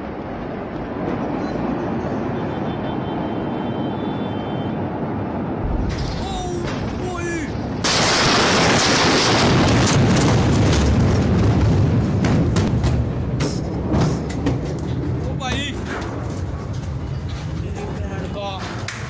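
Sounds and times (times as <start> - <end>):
explosion blast wave roar: 4.7 - 14.3
deep rumble: 5.3 - 7.8.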